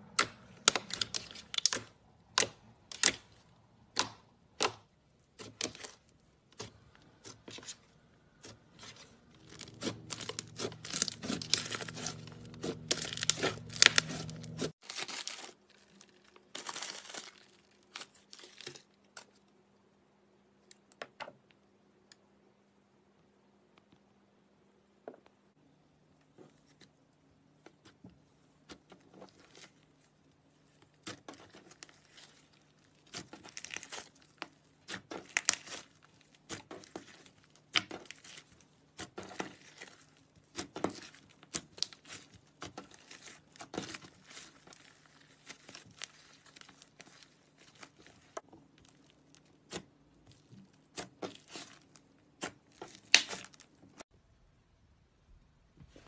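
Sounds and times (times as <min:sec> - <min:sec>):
slime crackling and popping: 0:00.1 - 0:04.8, 0:09.4 - 0:15.4, 0:31.0 - 0:53.8.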